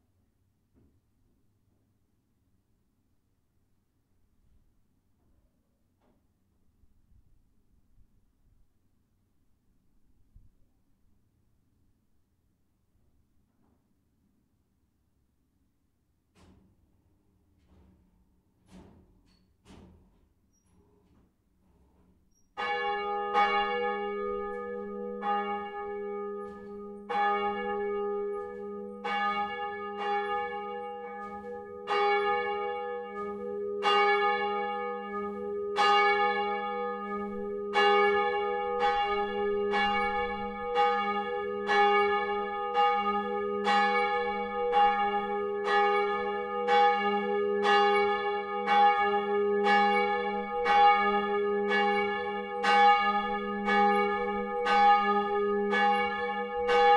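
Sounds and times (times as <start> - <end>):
church bell ringing: 22.6 - 56.9.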